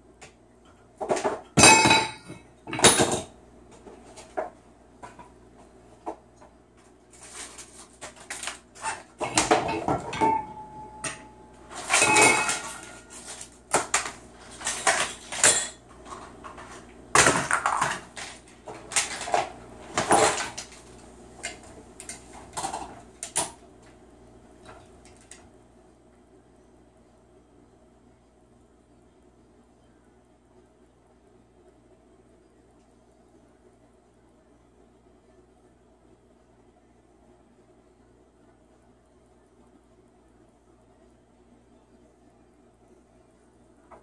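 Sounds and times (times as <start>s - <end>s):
objects clattering on tile floor: 1.0s - 5.4s, 7.2s - 23.6s.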